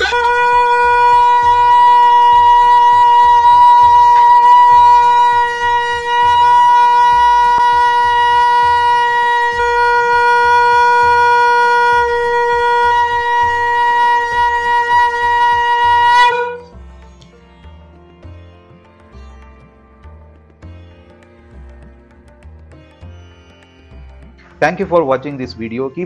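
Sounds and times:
conch shell horn note: 0:00.0 - 0:16.8.

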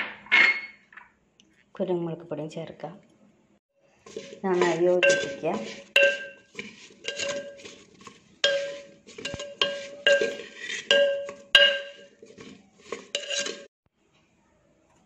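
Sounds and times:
metal spoon stirring in clay pot: 0:03.9 - 0:13.7.

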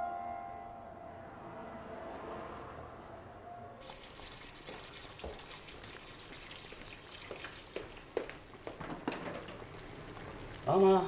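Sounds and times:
tap running into sink: 0:03.8 - 0:09.7
clinks and knocks in sink: 0:08.7 - 0:09.6.

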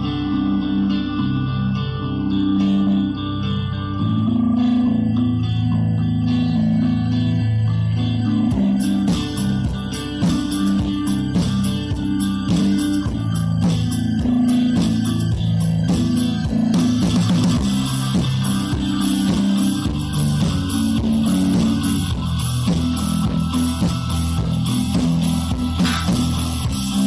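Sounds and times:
guitar background music: 0:00.0 - 0:27.0
steady bass line: 0:00.0 - 0:27.0.

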